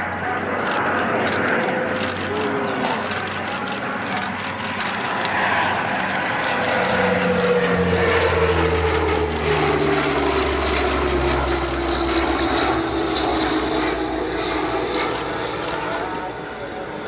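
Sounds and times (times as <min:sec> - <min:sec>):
aircraft flying past low: 0:00.0 - 0:17.0.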